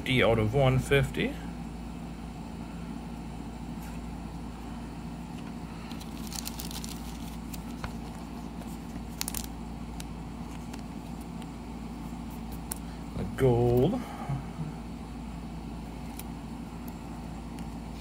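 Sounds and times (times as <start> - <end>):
steady background hum: 0.0 - 18.0
trading cards rustling and clicking: 5.8 - 11.6, 12.2 - 12.9, 16.0 - 17.7.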